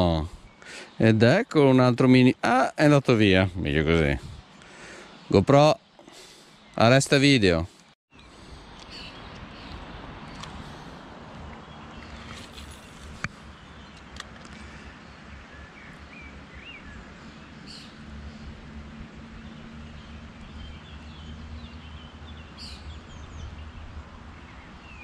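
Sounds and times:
small birds chirping: 0:03.4 - 0:25.0.

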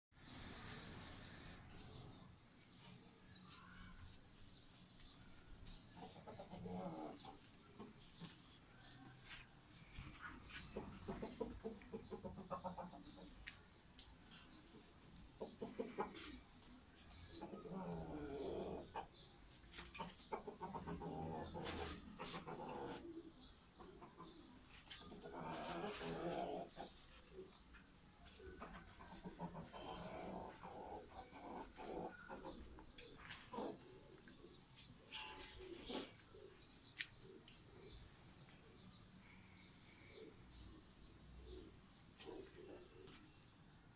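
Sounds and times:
faint bird and animal calls: 0:00.2 - 0:43.9
hen clucking: 0:10.3 - 0:13.4, 0:15.4 - 0:16.5, 0:17.3 - 0:19.2, 0:19.8 - 0:27.6, 0:28.2 - 0:34.4.

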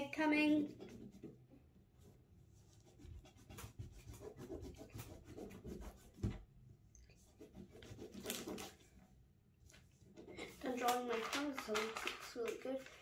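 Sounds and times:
scribbling on paper: 0:00.3 - 0:01.4, 0:02.6 - 0:06.3, 0:07.2 - 0:08.7.

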